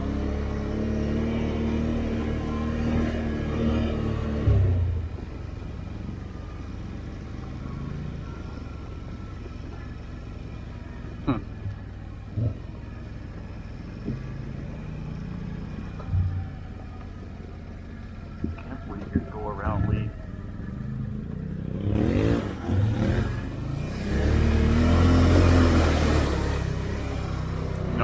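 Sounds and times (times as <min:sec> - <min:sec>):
engine revving and rumbling: 0:00.0 - 0:28.0.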